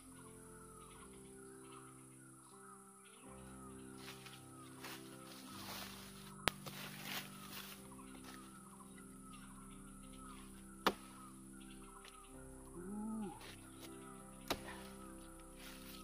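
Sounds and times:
bird-like calls: 3.2s - 16.0s.

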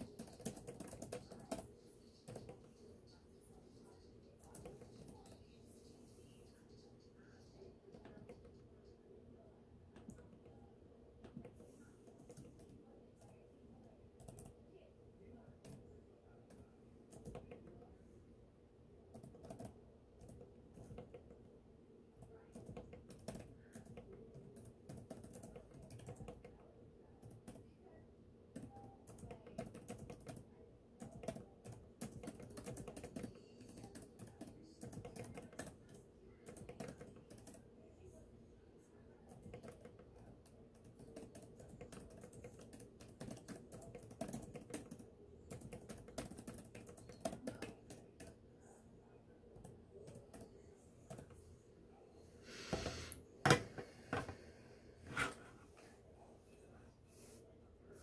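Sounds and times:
typing on laptop keyboard: 0.0s - 3.2s, 4.3s - 5.6s, 11.2s - 13.4s, 14.2s - 14.6s, 16.5s - 17.8s, 19.1s - 21.4s, 22.2s - 27.7s, 28.5s - 37.7s, 39.2s - 48.4s, 49.6s - 51.4s
faint steady hum: 0.0s - 58.0s.

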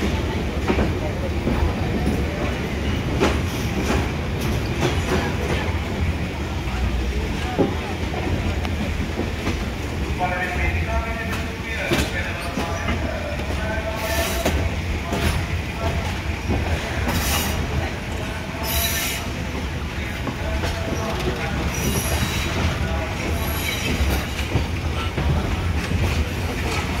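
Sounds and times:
train rumbling on rails: 0.0s - 27.0s
train wheel squeals: 21.7s - 22.7s, 23.3s - 24.3s.

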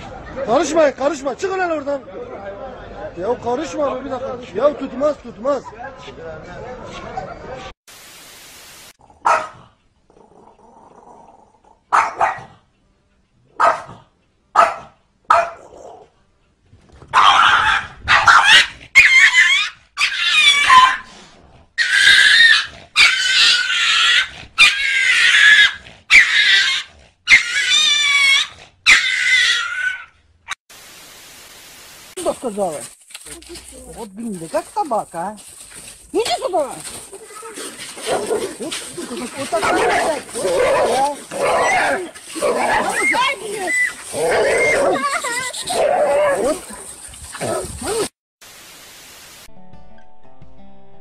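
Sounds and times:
small dog barking: 9.2s - 9.6s, 11.9s - 12.6s, 13.6s - 14.0s, 14.6s - 15.8s, 17.1s - 19.5s
dog yelping and squealing: 17.1s - 21.1s, 21.8s - 30.2s, 36.9s - 48.1s.

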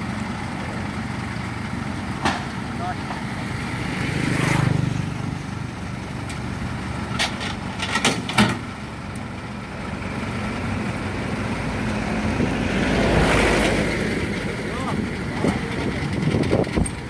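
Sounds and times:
harvester engine idling: 0.0s - 17.0s
metal ramp gratings clanking: 7.1s - 8.7s.

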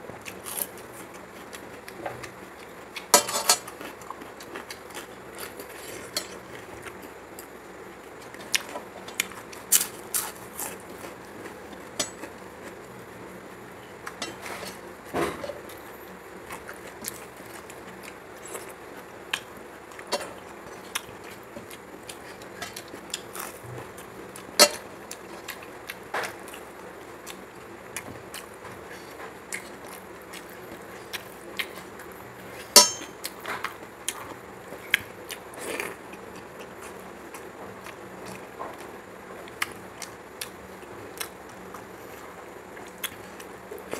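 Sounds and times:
light clinks on metal dishes: 32.8s - 33.1s.

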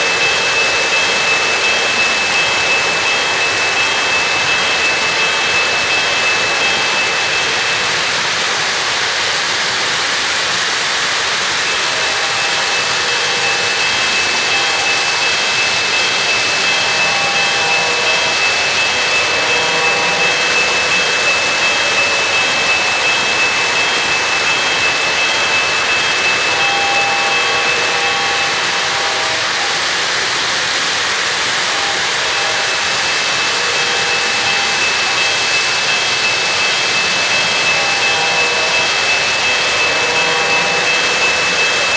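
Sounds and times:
thin high whine: 0.0s - 9.3s, 11.3s - 41.9s
model train wheels rumbling: 0.0s - 41.9s
motors humming: 11.7s - 41.9s.

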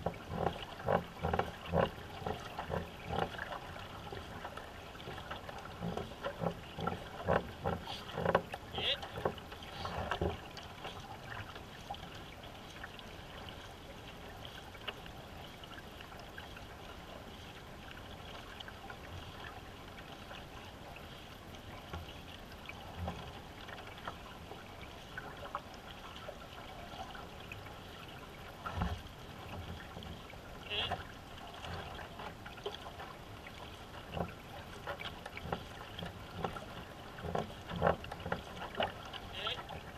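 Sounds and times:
knocks on canoe: 0.0s - 3.5s, 5.0s - 10.4s, 34.1s - 38.9s
small splashes: 0.0s - 39.9s
water rushing along canoe hull: 0.0s - 39.9s.

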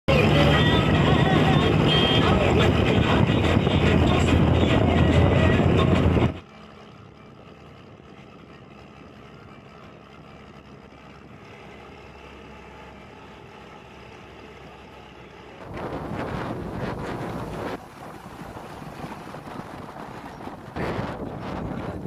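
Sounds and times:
bus engine rumble: 0.0s - 22.0s
road rumble: 0.0s - 22.0s
wind buffeting through window: 2.2s - 6.4s, 15.6s - 22.0s.

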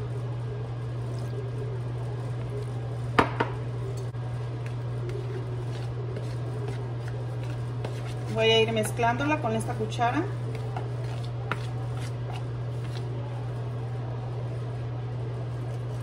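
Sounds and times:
spoon stirring and scraping bowl: 4.3s - 13.7s.

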